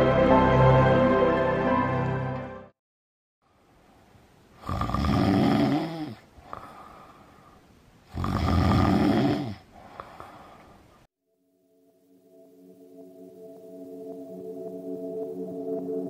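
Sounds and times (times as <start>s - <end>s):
person snoring: 4.6s - 7.2s, 8.1s - 10.5s.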